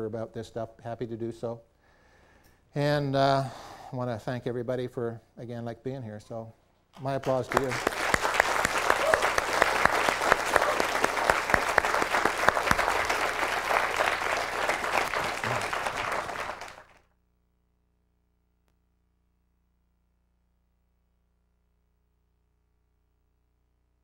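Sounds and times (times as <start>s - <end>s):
audience applauding: 7.1s - 17.0s.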